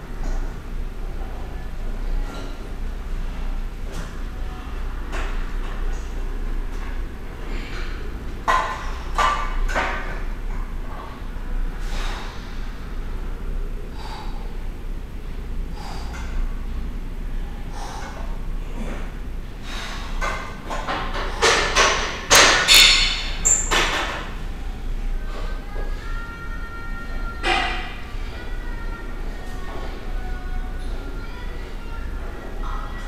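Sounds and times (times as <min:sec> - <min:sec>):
sharp breaths: 0:11.8 - 0:13.0, 0:13.9 - 0:14.7, 0:15.7 - 0:16.4, 0:19.6 - 0:20.5.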